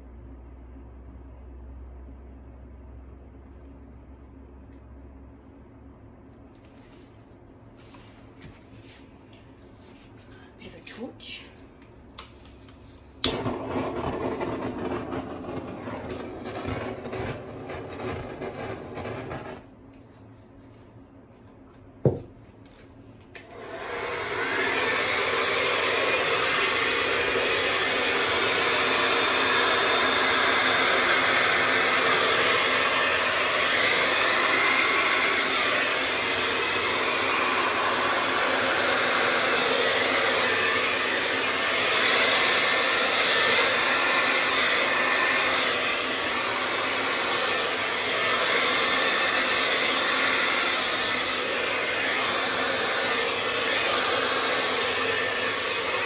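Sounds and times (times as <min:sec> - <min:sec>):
hair dryer blowing air: 0:12.2 - 0:19.7, 0:23.4 - 0:56.0.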